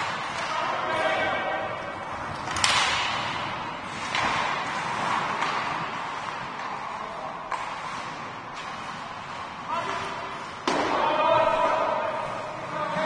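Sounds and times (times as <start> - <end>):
hockey stick and puck cracks: 2.3 - 11.2.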